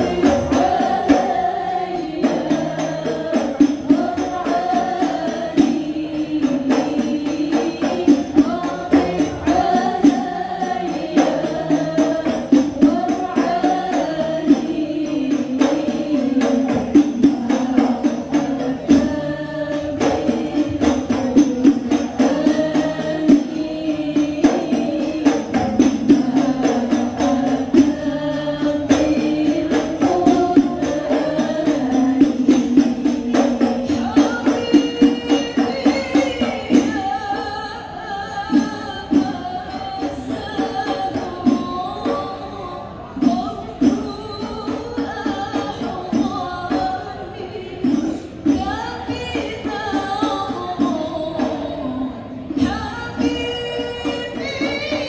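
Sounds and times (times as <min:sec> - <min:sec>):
hand-struck frame drums: 0:00.0 - 0:37.5
women singing in unison: 0:00.0 - 0:55.0.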